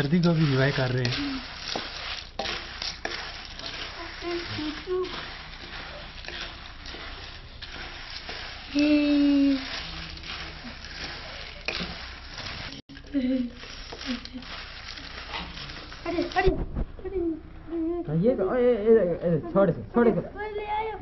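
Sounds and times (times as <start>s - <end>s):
nuts and salt scraping in metal pan: 0.0s - 16.6s.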